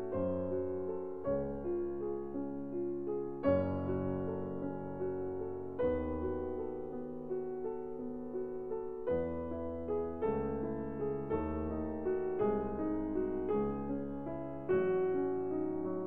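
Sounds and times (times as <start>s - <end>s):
slow gentle piano music: 0.0s - 16.0s.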